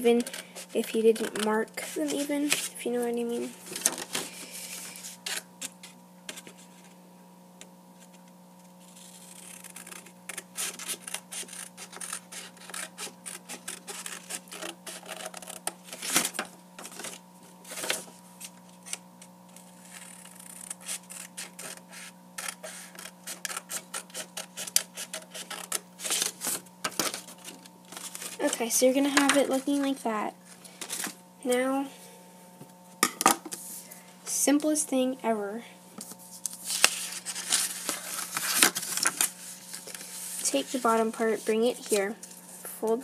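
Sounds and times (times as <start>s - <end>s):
scissors snipping paper: 8.9s - 18.0s, 18.8s - 29.9s.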